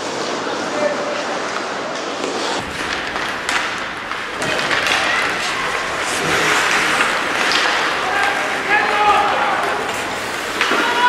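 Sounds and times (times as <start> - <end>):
skates scraping ice: 0.0 - 11.0
sticks knocking puck: 2.2 - 11.0
spectators shouting: 3.7 - 11.0.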